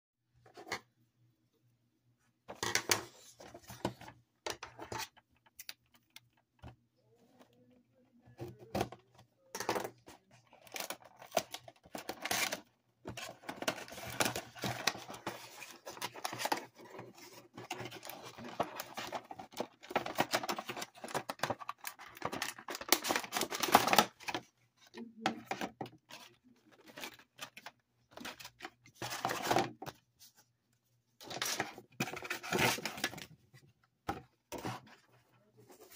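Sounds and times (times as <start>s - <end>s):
cardboard packaging being handled: 10.3s - 24.5s, 31.2s - 33.4s.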